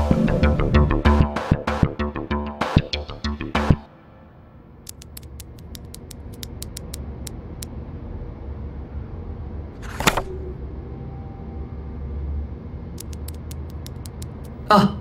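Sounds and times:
low room hum: 3.9s - 15.0s
laptop keyboard clicks: 4.9s - 7.0s, 13.0s - 14.5s.

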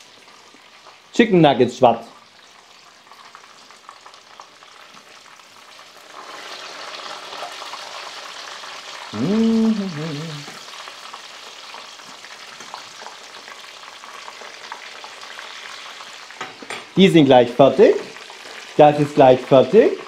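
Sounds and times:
food sizzling in hot oil: 0.0s - 20.0s
rising and falling tone: 9.2s - 10.6s.

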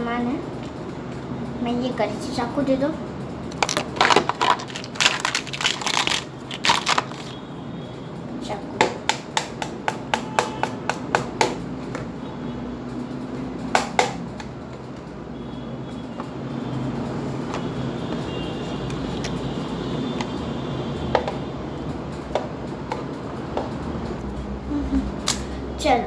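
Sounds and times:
plastic toys clicking and tapping: 3.5s - 7.4s.

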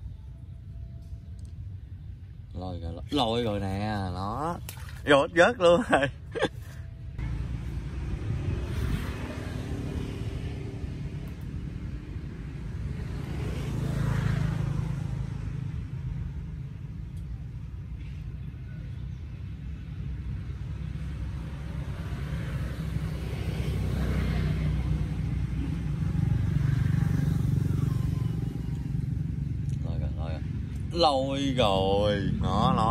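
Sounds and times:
passing vehicle engine rumble: 6.9s - 32.9s.

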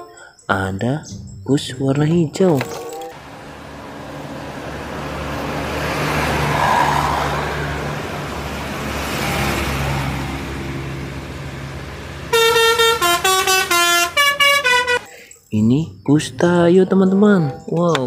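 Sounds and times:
buses passing by: 3.0s - 15.4s
bus horn playing a tune: 12.2s - 15.1s.

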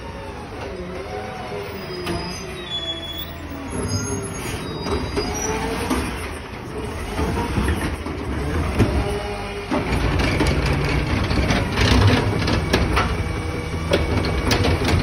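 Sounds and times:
brakes squealing: 0.0s - 10.1s.

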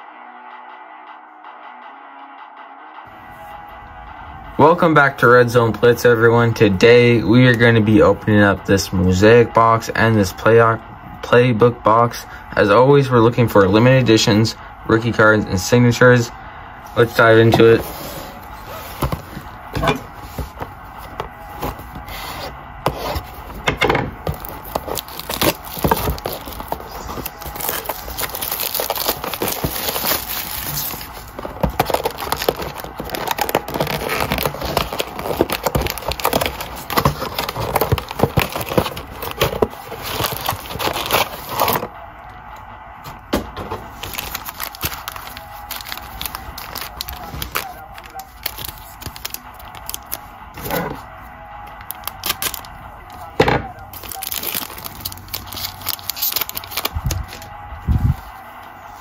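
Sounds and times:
cardboard scraping: 17.0s - 41.9s, 43.3s - 51.0s, 53.9s - 58.4s
packaging crinkling and ripping: 24.2s - 41.9s, 43.7s - 51.0s, 51.7s - 58.4s.

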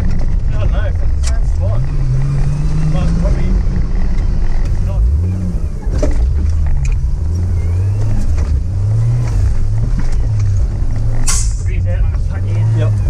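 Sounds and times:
truck knocks and rattles: 5.8s - 7.1s, 8.0s - 12.4s.

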